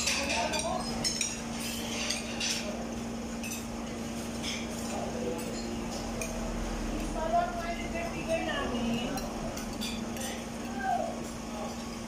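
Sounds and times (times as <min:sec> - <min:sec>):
cutlery clinking on plates: 0:00.0 - 0:02.8, 0:03.4 - 0:06.4, 0:09.0 - 0:10.8.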